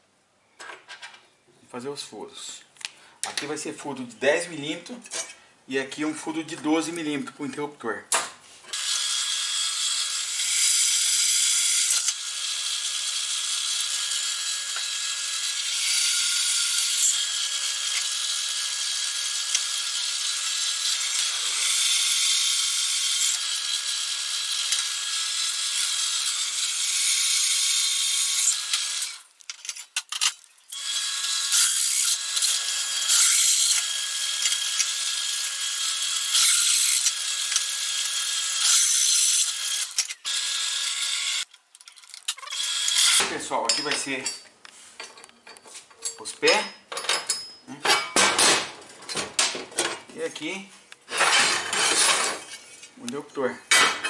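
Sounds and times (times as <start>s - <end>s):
drill bit scraping through steel: 8.7s - 43.2s.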